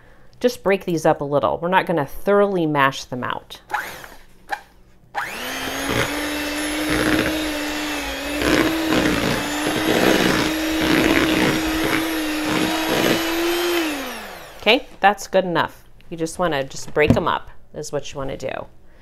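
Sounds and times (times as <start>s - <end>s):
electric hand mixer running: 5.2s - 14.7s.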